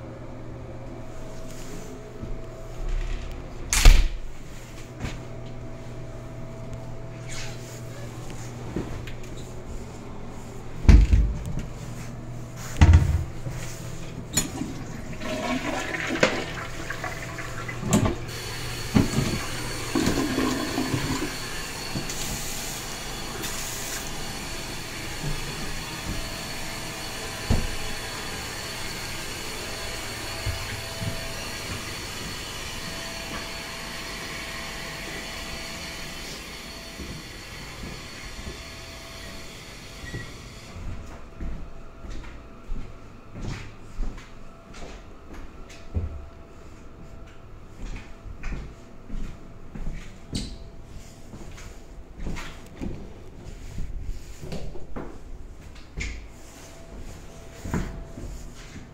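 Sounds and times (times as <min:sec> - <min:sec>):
toilet flushing: 0:14.3 - 0:40.7.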